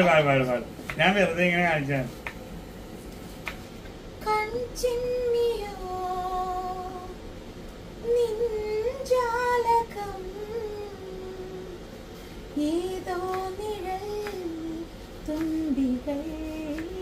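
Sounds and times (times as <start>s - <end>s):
woman singing unaccompanied: 4.2s - 7.2s, 8.0s - 11.9s, 12.5s - 17.0s.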